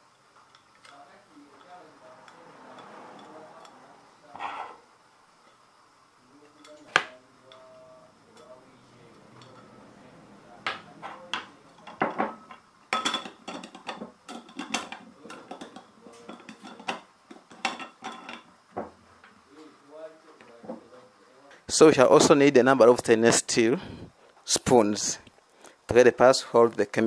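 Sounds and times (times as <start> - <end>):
faint ringing: 0.0 - 14.0.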